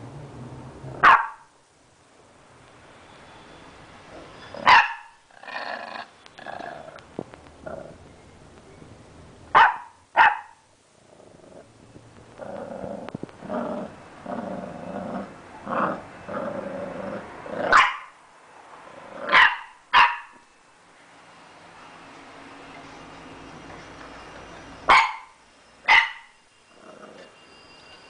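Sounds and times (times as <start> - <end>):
puppy barking: 1.0 - 1.5, 4.6 - 5.2, 9.5 - 10.6, 17.7 - 18.2, 19.3 - 20.4, 24.9 - 26.3
puppy growling: 5.3 - 8.0, 11.0 - 17.8, 18.9 - 19.4, 26.8 - 27.3.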